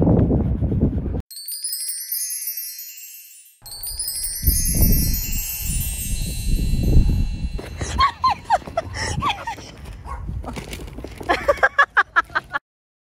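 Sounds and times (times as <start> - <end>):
shimmering chime sweep: 1.3 - 7.9.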